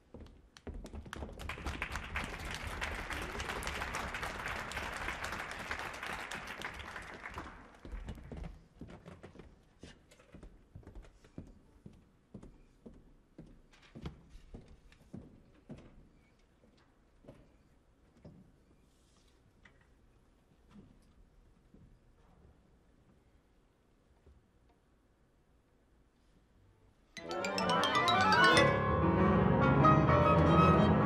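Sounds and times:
audience applause: 0:01.4 - 0:08.2.

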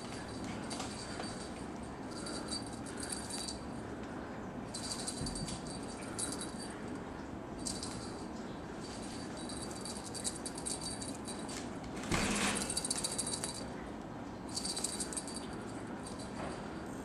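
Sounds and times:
small bell jingling: 0:00.0 - 0:03.7, 0:04.7 - 0:06.9, 0:07.6 - 0:11.6, 0:12.6 - 0:13.7, 0:14.5 - 0:16.5.

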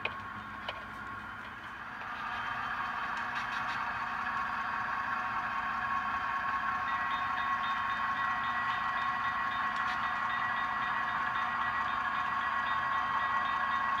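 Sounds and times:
model locomotive diesel engine: 0:00.0 - 0:14.0
crossing bell ringing: 0:06.8 - 0:14.0.

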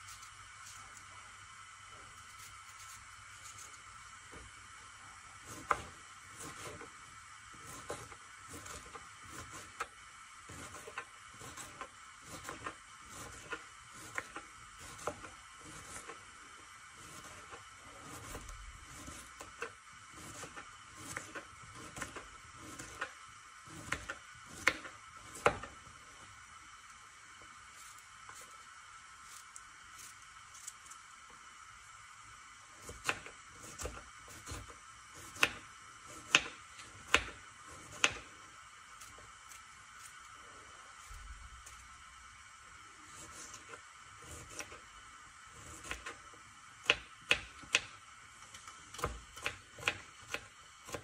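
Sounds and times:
knife chopping on wooden board: 0:05.5 - 0:06.8, 0:23.7 - 0:25.7, 0:32.8 - 0:38.2, 0:46.8 - 0:47.9, 0:48.9 - 0:51.0.

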